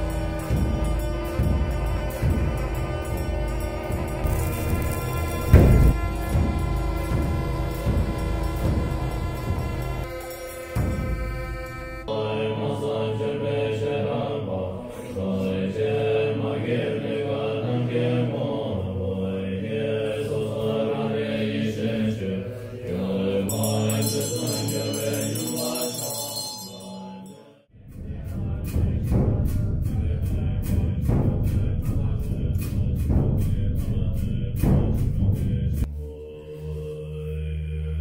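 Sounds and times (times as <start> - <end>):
rhythmic strikes: 0.0 - 12.1, 23.3 - 35.9
monks chanting in low voices: 0.0 - 38.0
high ringing: 23.4 - 27.6.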